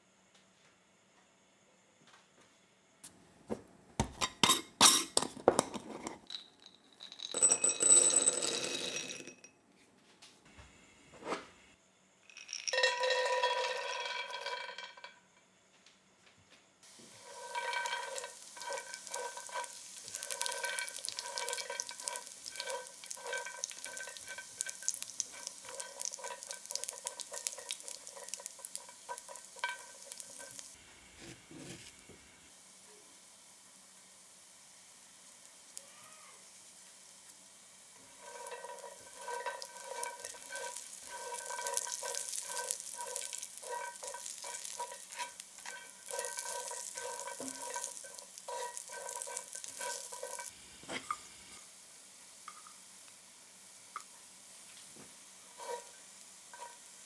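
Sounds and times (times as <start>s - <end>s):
peanuts sizzling in oil: 4.0s - 9.3s, 11.9s - 15.7s, 16.8s - 57.0s
peanuts rattling as poured: 12.3s - 14.9s, 17.0s - 30.8s, 38.1s - 50.5s.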